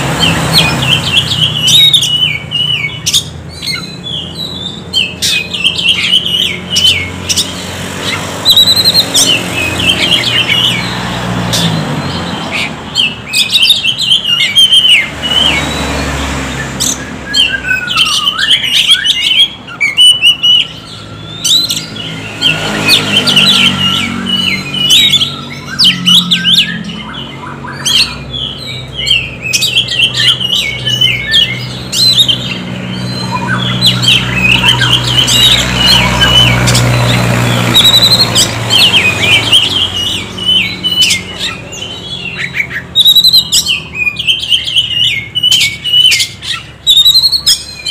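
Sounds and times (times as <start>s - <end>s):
bird singing chirps and whistles: 0.1s - 47.9s.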